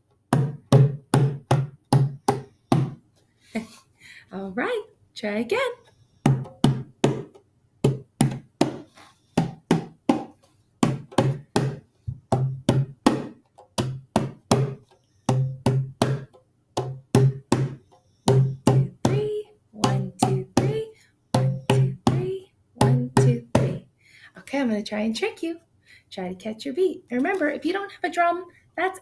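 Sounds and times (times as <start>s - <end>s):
hand drum beats: 6.3s - 8.8s, 9.4s - 23.8s.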